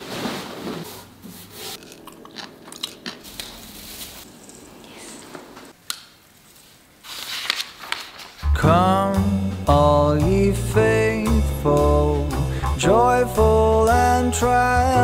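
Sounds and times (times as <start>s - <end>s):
artificial branches crackling: 1.7s - 8.5s.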